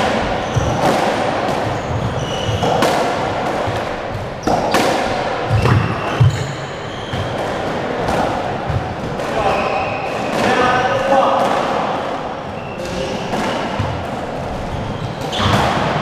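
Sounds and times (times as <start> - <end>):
shoe squeaks: 0.3 - 0.9, 1.6 - 2.8, 5.5 - 7.6, 9.3 - 10.6, 12.5 - 13.7, 14.5 - 15.8
squash ball cracks: 2.6 - 6.4.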